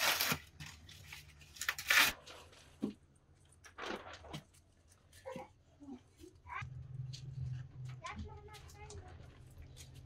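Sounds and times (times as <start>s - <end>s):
rough tearing and crunching: 0.0s - 2.5s.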